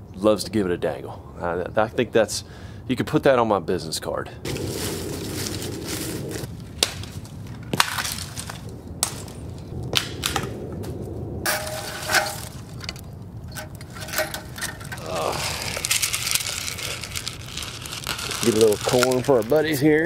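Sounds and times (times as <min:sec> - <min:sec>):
dry leaves crunching and rustling: 0:04.5 - 0:09.5, 0:11.5 - 0:13.0, 0:13.6 - 0:20.0
dry sticks snapping and cracking: 0:06.4 - 0:19.8.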